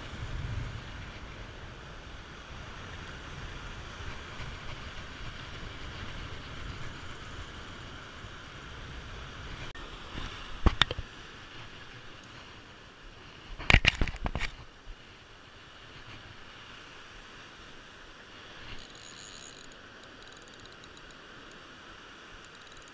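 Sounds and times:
wind on microphone: 0.0 - 12.6
surf breaking on shore: 0.0 - 20.0.

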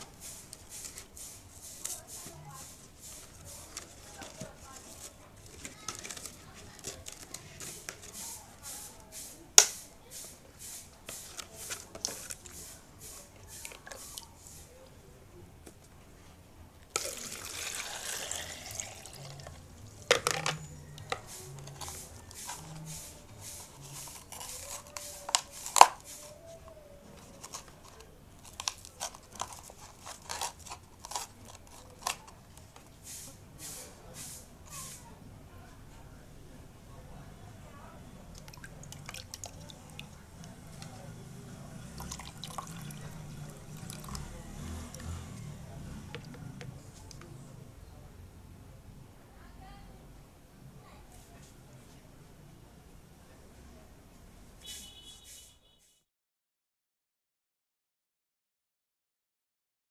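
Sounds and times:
plastic crinkling and clicking: 3.7 - 8.2, 27.1 - 32.9
water pouring into a glass: 17.0 - 19.5, 42.0 - 43.1.

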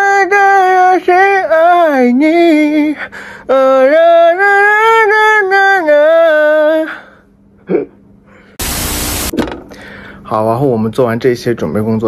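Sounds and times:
man singing: 0.0 - 7.1
loud burst of noise: 8.6 - 9.5.

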